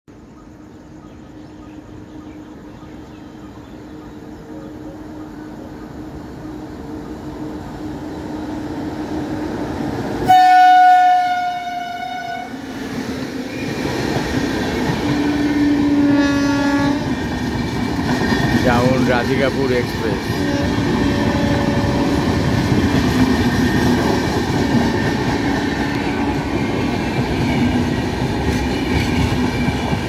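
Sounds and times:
train running noise: 0.2s - 30.0s
train rushing past: 0.8s - 30.0s
locomotive horn blast: 10.2s - 12.6s, 15.8s - 17.1s, 20.4s - 22.1s.

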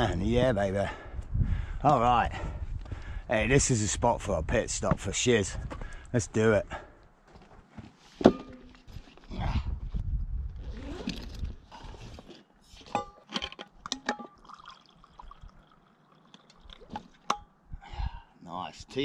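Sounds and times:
tea pouring into cup: 14.2s - 17.0s.

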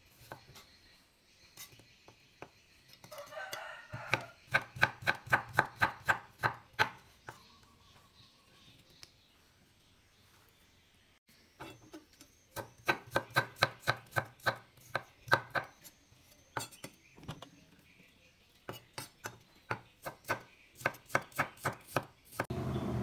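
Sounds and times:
knife chopping on wooden board: 4.0s - 7.0s, 12.6s - 15.7s, 18.7s - 22.5s.

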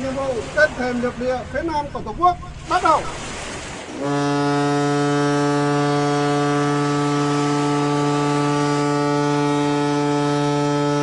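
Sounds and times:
ship's horn blast: 3.9s - 11.0s.

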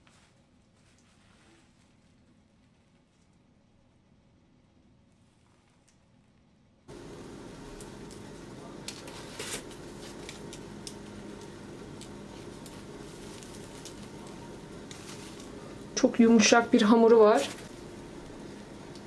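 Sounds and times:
background hum and hiss: 0.0s - 19.0s.

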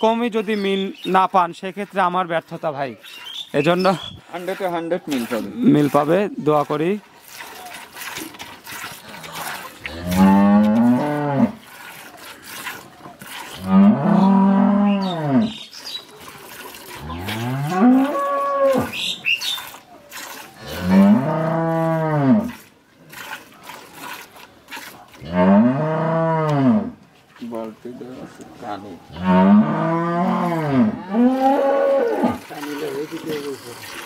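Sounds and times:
cow mooing: 9.2s - 11.6s, 13.6s - 15.6s, 25.2s - 27.0s, 29.1s - 32.4s.

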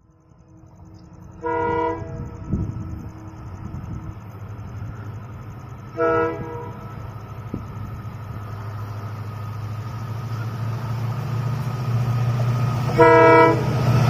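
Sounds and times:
diesel locomotive engine drone: 0.0s - 14.0s
locomotive horn blast: 1.4s - 2.6s, 5.9s - 7.0s, 12.9s - 14.0s.

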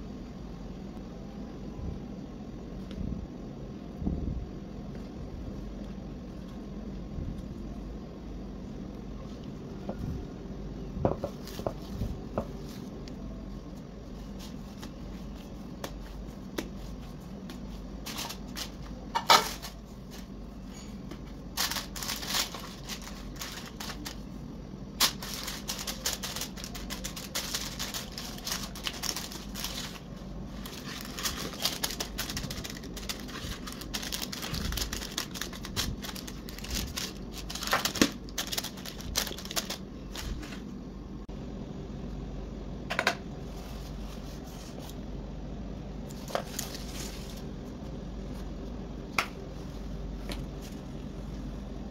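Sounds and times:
paper and plastic crinkling: 13.6s - 24.4s, 25.0s - 40.7s, 46.1s - 47.5s.

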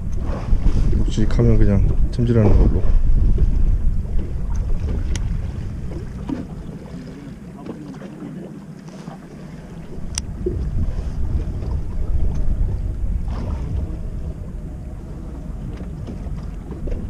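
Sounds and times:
wind buffeting microphone: 0.0s - 7.9s, 9.2s - 17.0s.

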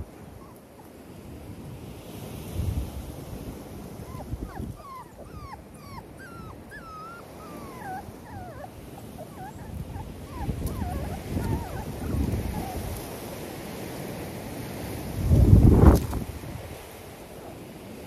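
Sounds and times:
puppies whining and yelping: 0.2s - 1.0s, 3.9s - 13.3s
wind rumble on microphone: 1.2s - 18.0s.

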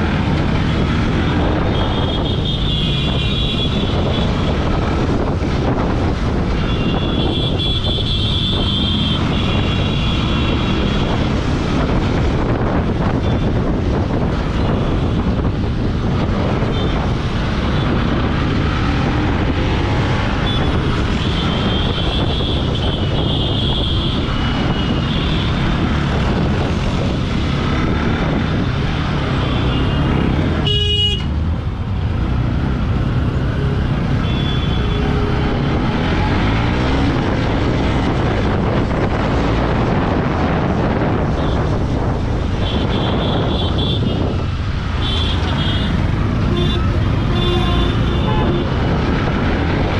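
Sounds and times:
vehicle horns tooting: 29.7s - 31.3s, 45.0s - 48.8s.

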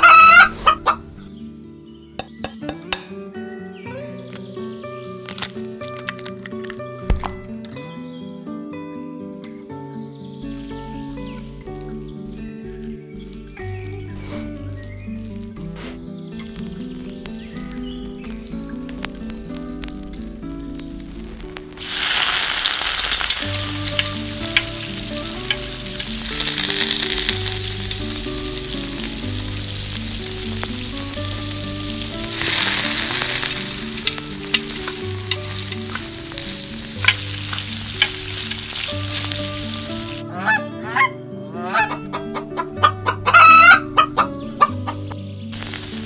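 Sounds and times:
chicken clucking: 0.0s - 1.1s, 40.3s - 45.2s
geese honking: 0.0s - 1.1s, 21.9s - 45.0s
oil popping: 5.2s - 7.6s, 10.4s - 40.2s, 45.6s - 46.0s
egg frying in hot oil: 5.3s - 6.7s, 10.5s - 15.6s, 16.4s - 40.2s, 45.6s - 46.0s.

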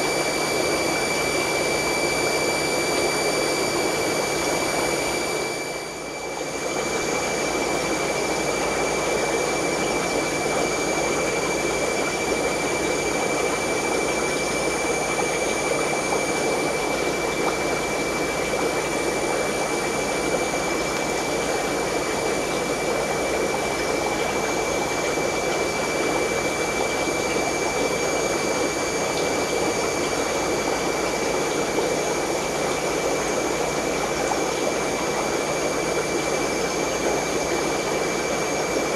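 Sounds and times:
aquarium pumps humming: 0.0s - 38.9s.

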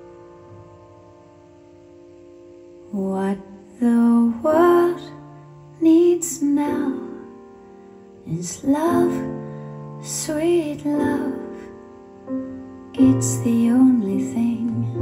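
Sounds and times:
slow song over loudspeakers: 2.4s - 15.0s
person singing with vibrato: 2.9s - 7.4s, 8.2s - 11.8s, 13.0s - 15.0s.

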